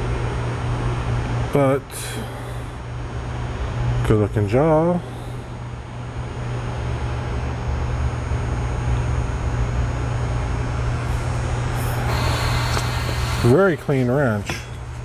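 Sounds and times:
machine humming and rushing: 0:10.7 - 0:15.0.

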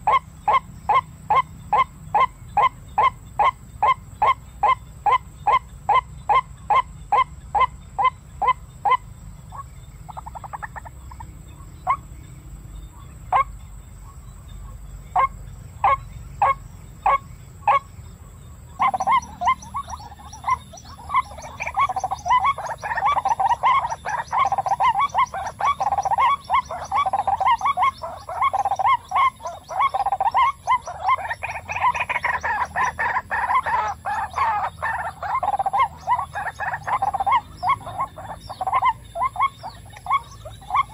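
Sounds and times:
chorus of croaking bird calls: 0:00.0 - 0:40.9
bird sharp calling notes: 0:18.7 - 0:40.9.

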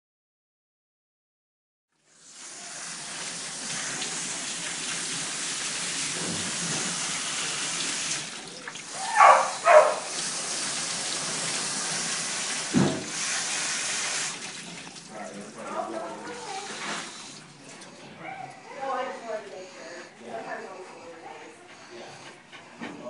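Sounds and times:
water spraying on dog's coat: 0:02.1 - 0:21.4
thump: 0:12.7 - 0:13.1.

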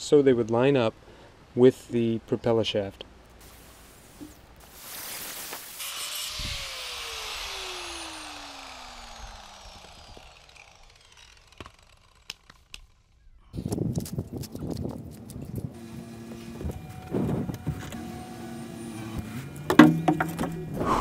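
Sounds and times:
angle grinder winding down: 0:05.7 - 0:13.1, 0:17.8 - 0:19.3.

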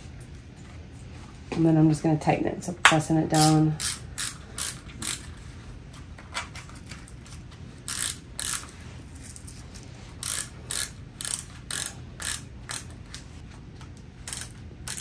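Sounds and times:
ratcheting dial clicks: 0:03.4 - 0:05.3, 0:07.9 - 0:08.7, 0:10.2 - 0:13.2, 0:14.3 - 0:15.0.

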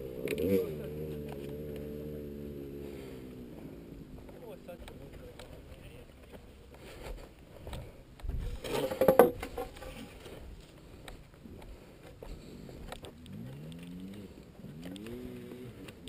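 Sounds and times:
scraping rustle: 0:08.4 - 0:10.5.

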